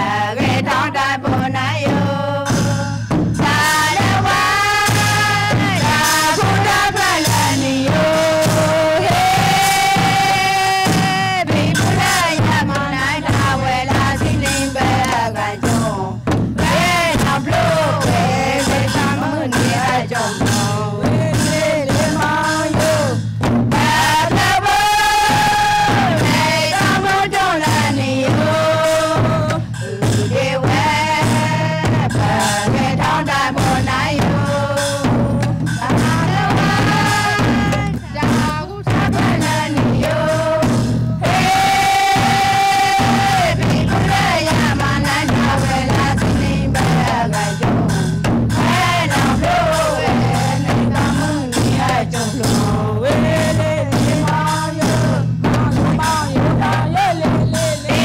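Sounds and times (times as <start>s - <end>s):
instrumental accompaniment: 0.0s - 58.0s
women singing in unison: 0.0s - 58.0s.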